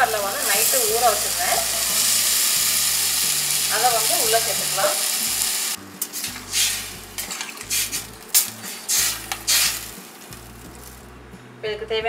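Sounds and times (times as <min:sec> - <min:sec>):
metal spoon scraping steel pot: 0:06.0 - 0:10.0.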